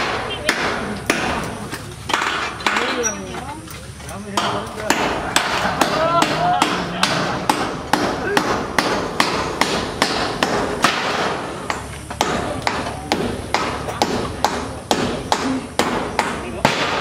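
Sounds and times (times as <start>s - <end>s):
hammer driving nails: 2.1s - 3.1s, 4.4s - 17.0s.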